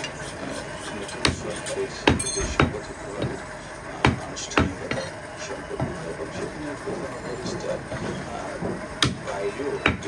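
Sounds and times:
cleaver chopping meat on wood: 1.2 - 1.4, 4.0 - 4.8, 9.0 - 10.0.

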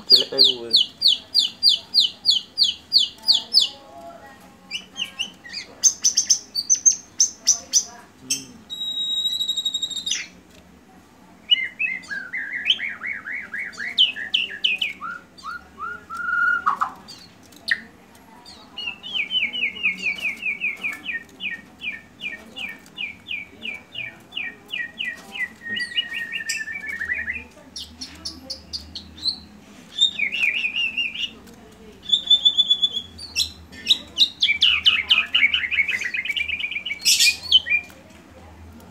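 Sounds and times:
bird singing: 0.0 - 3.8, 4.7 - 10.4, 11.4 - 31.4, 32.0 - 38.0.

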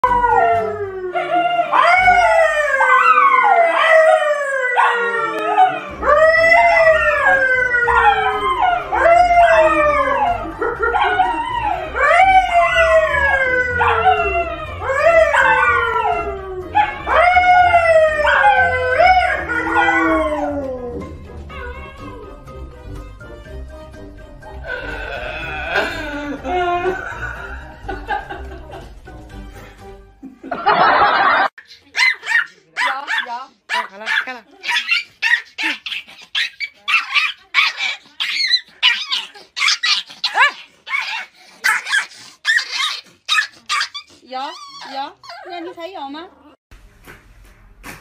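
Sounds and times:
dog howling: 0.0 - 22.4.

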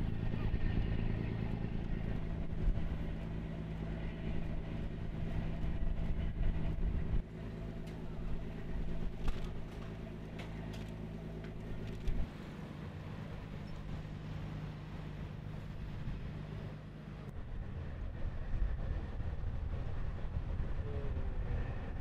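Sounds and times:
engines humming: 0.0 - 22.0
light clicks and clanks: 9.2 - 12.3.

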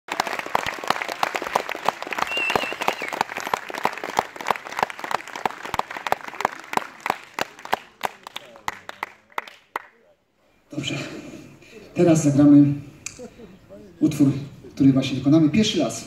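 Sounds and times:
audience applauding: 0.1 - 10.0
whistle from crowd: 2.2 - 3.6.

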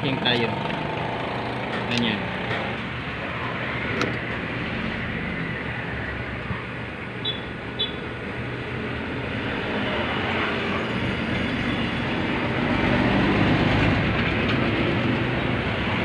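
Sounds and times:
passing motor vehicle rumble: 0.0 - 16.0.

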